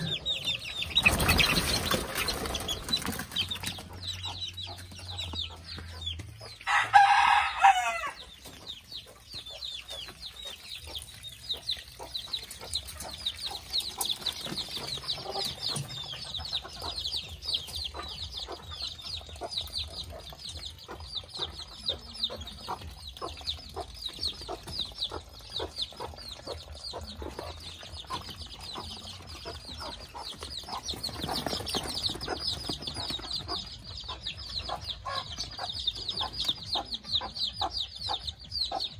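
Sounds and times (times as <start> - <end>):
chickens clucking: 0.0 - 38.9
chicks peeping: 0.0 - 38.9
rooster crowing: 6.7 - 8.2.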